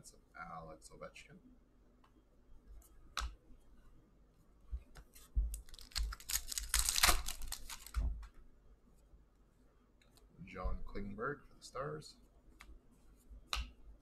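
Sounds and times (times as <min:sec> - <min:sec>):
trading cards clicking and flicking: 0:05.0 - 0:08.0
cards and packaging rustling: 0:05.0 - 0:08.2.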